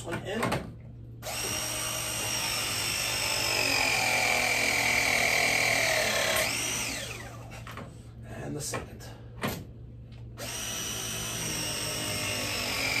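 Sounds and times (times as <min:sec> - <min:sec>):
press tool motor whining: 0:01.2 - 0:07.5, 0:10.4 - 0:13.0.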